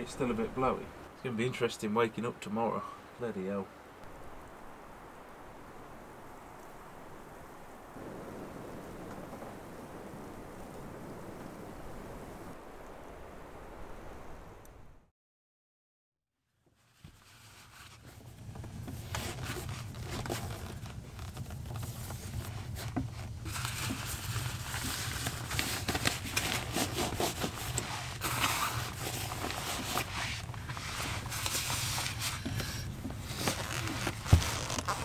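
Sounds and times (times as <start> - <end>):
clothing and boots rustling: 16.8 - 35.0.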